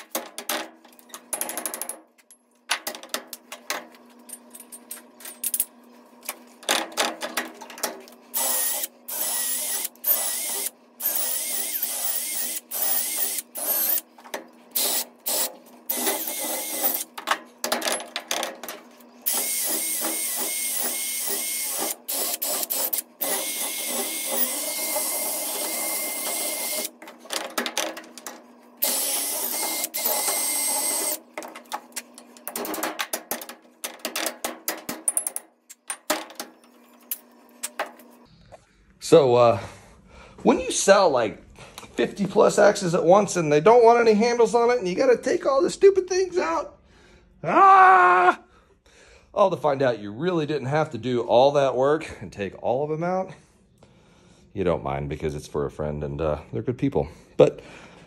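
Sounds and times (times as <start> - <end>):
drill whining into wood: 8.4 - 14.0, 14.8 - 17.1, 19.2 - 26.9, 28.8 - 31.2.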